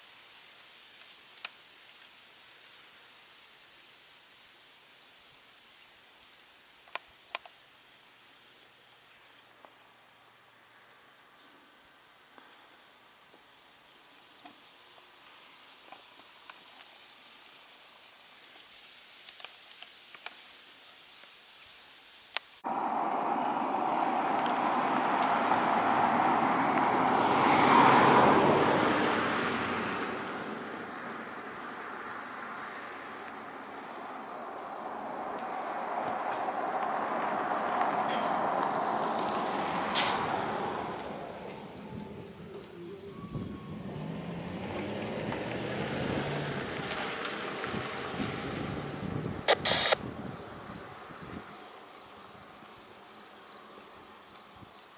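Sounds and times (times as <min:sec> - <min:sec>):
crickets and insects chirping: 0:00.0 - 0:54.9
vehicle passing: 0:22.6 - 0:51.6.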